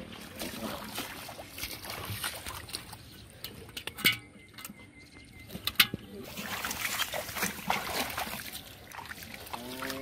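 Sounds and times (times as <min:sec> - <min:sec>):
bare feet splashing in mud: 0:00.0 - 0:04.0, 0:05.5 - 0:10.0.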